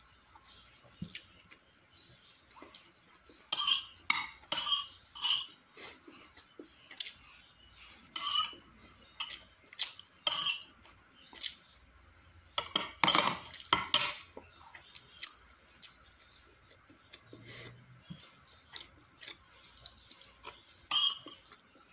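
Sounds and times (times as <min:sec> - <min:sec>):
cutlery scraping and clinking on plates: 0:03.4 - 0:06.3, 0:07.7 - 0:11.0, 0:12.5 - 0:14.5, 0:19.2 - 0:21.6.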